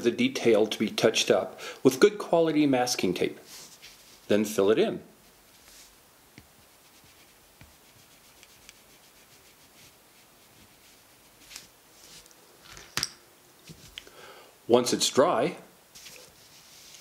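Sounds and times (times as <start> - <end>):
marker scratching on tape: 6.5 - 11.7.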